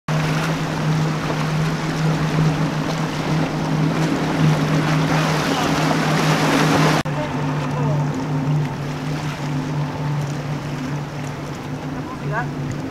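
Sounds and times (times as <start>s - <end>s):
outboard engines droning: 0.1s - 12.9s
rushing water: 0.1s - 12.9s
wind: 0.1s - 12.9s.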